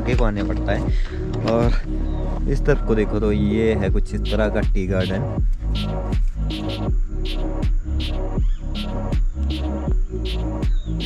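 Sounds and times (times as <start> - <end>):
electronic music with steady beat: 0.0 - 11.0
deep bass kick: 3.9 - 11.0.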